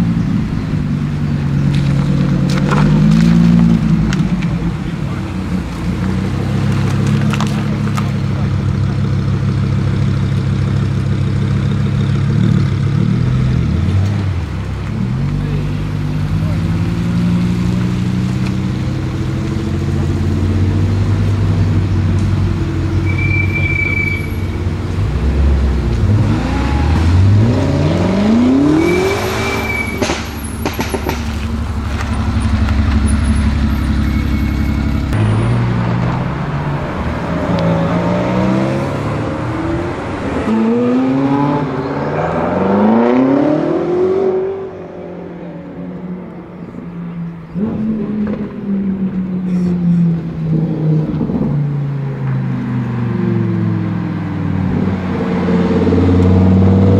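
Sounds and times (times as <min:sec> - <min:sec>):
car engine pulling away: 0:00.0 - 0:56.9
car engine revving: 0:00.0 - 0:56.9.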